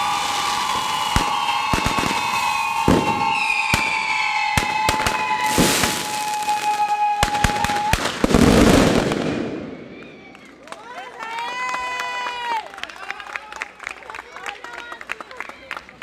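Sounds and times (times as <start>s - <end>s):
fireworks crackling: 0.0s - 10.4s
whistling fireworks: 0.0s - 10.5s
firecracker bangs: 0.6s - 6.4s, 7.2s - 9.9s.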